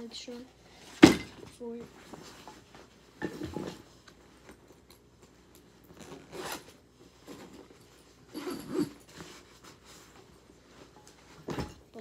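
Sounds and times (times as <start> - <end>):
bag zipper being pulled: 5.9 - 6.8.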